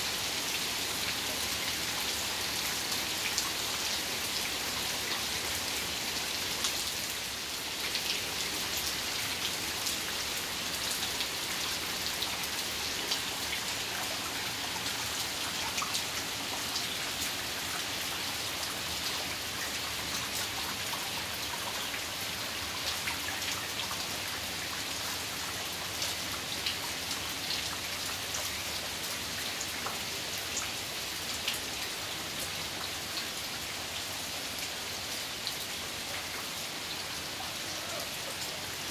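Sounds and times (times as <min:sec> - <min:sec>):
rain on ground and foliage: 0:00.0 - 0:38.9.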